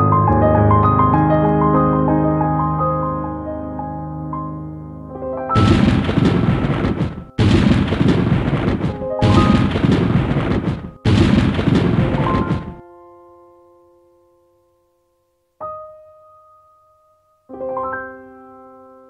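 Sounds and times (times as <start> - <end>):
piano music: 0.0 - 14.8, 15.6 - 19.0
loud noise blasts: 5.6 - 12.8.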